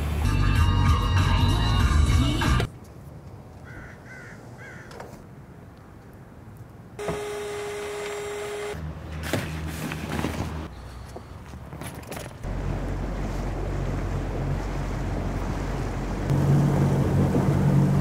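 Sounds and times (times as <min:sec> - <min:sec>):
bird cawing: 0:03.6 - 0:05.0.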